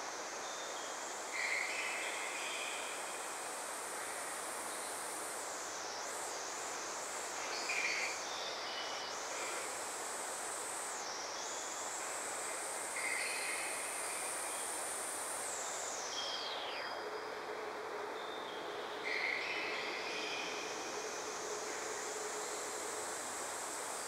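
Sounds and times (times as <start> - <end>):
synthesizer hissing noise texture: 19.0 - 24.0.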